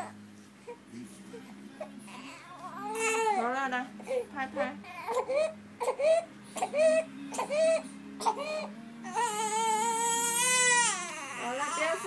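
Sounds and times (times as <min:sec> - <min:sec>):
newborn baby crying: 0:02.0 - 0:04.2, 0:04.8 - 0:12.0.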